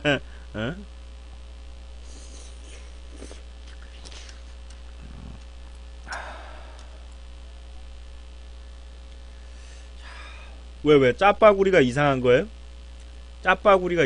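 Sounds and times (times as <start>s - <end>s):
low electrical hum: 0.0s - 14.0s
mouth eating noise: 2.0s - 5.5s.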